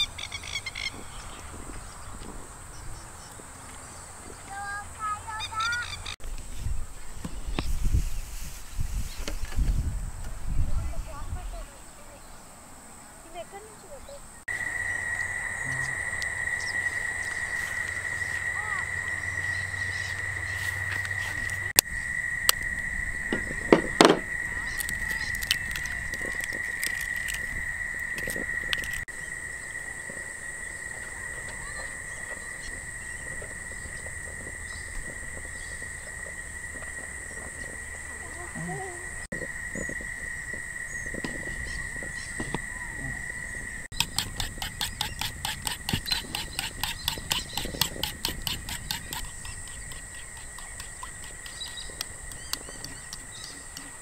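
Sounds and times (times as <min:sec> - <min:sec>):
high-pitched hum: 0:14.4 - 0:29.9
eggs cracking on bowl: 0:24.7 - 0:29.1.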